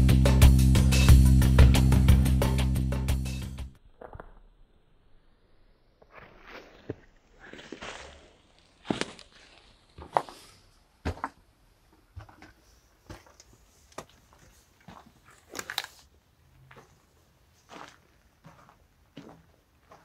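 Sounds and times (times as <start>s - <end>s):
footsteps crunching on brick rubble: 6.0s - 20.0s.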